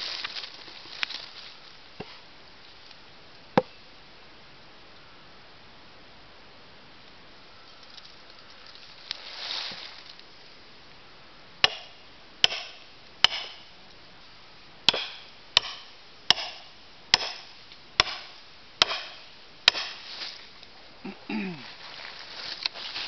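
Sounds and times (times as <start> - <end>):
maul striking steel wedge: 11.6 - 13.7, 14.9 - 20.0.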